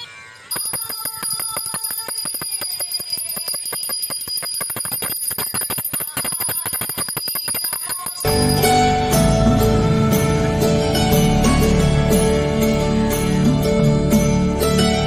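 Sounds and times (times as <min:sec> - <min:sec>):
brass hand bell ringing rapidly: 0:00.5 - 0:09.6.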